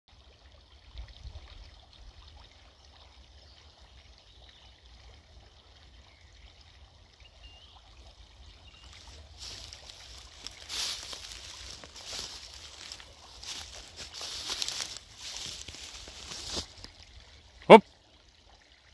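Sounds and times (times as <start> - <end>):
creek trickling: 0.1 - 18.9
rustling in dry grass: 8.8 - 17.0.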